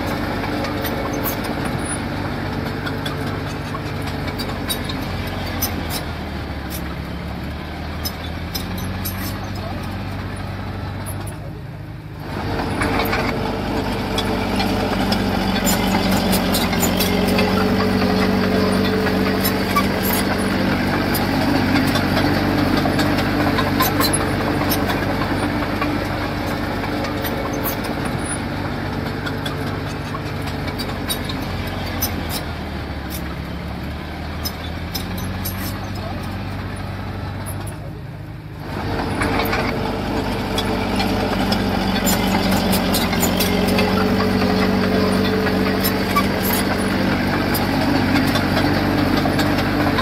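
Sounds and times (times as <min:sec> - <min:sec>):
diesel engine running: 0:00.0 - 0:50.0.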